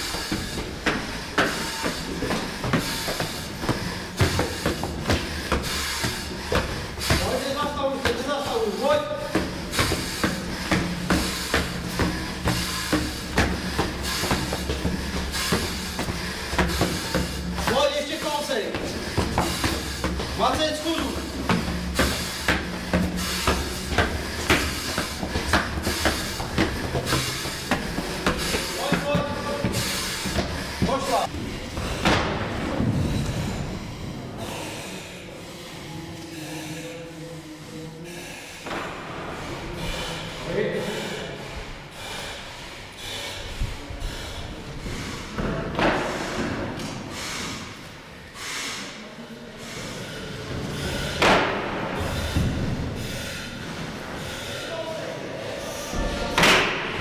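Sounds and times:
heavy boots on stone stairs: 0:00.0 - 0:32.1
breathing through face mask: 0:00.0 - 0:32.3, 0:32.9 - 0:56.4.

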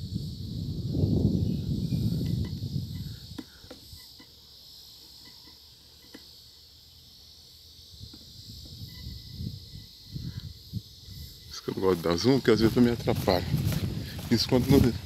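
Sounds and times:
wind rumble on microphone: 0:00.0 - 0:03.4, 0:07.9 - 0:15.0
insects chirring: 0:00.0 - 0:15.0.

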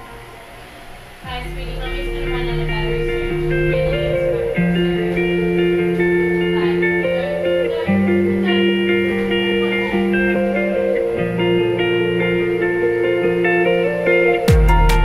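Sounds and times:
instrumental background music: 0:01.3 - 0:15.0.

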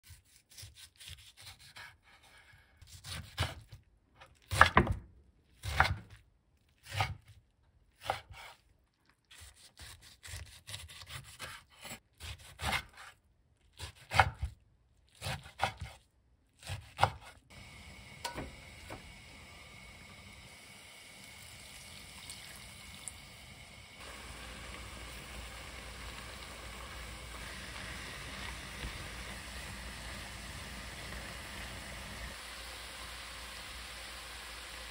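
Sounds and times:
knife slicing on wooden board: 0:08.0 - 0:08.6
food sizzling in a pan: 0:17.5 - 0:34.9.

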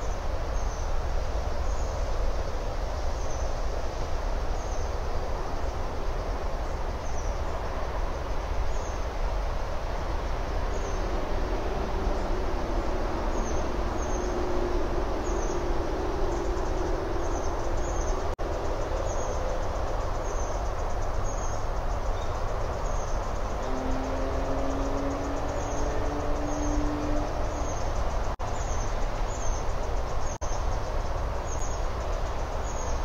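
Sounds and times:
faint hum shifting in pitch: 0:10.1 - 0:19.0, 0:23.3 - 0:28.4.

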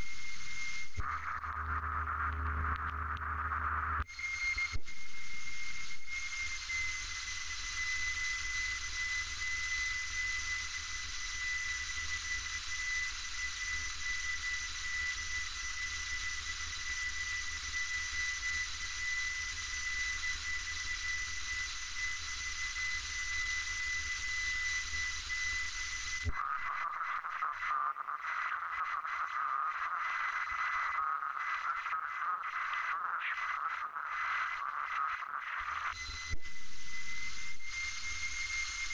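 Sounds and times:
thin high whistle: 0:04.1 - 0:10.6, 0:11.3 - 0:26.3, 0:36.0 - 0:38.9.

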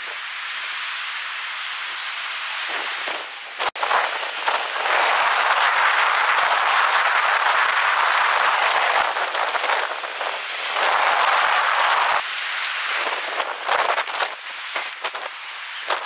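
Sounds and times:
rain: 0:00.0 - 0:16.0
wind: 0:00.0 - 0:16.0.

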